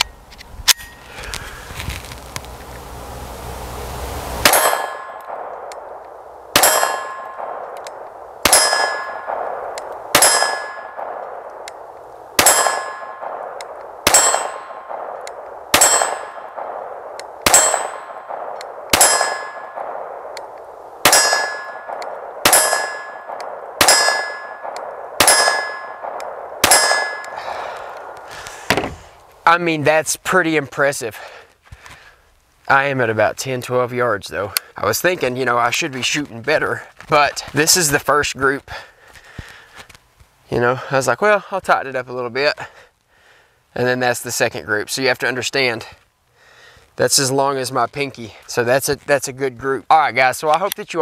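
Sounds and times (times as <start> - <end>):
bullet clanging steel target: 4.4 - 11.8, 12.4 - 28.9
pistol shots: 4.4 - 28.9.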